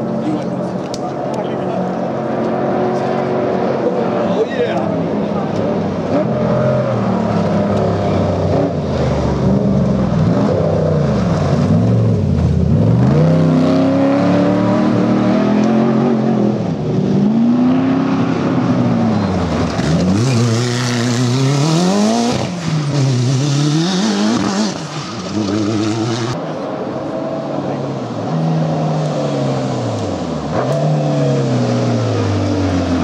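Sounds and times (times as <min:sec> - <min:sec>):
race vehicle engines revving: 0:00.0 - 0:33.0.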